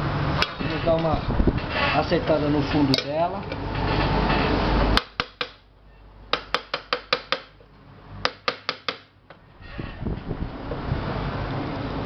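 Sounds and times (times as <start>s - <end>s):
hammer striking chisel on metal: 4.9s - 5.6s, 6.3s - 7.6s, 8.2s - 9.1s
loud rumbling noise: 9.6s - 12.0s.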